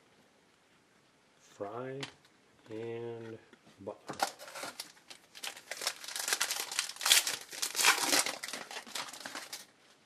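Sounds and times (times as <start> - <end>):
wrapper crinkling and tearing: 4.2 - 9.7.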